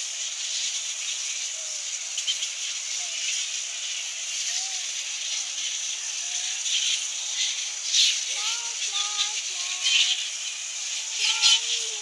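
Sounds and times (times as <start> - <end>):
fruit bats screeching: 0.2 - 12.0.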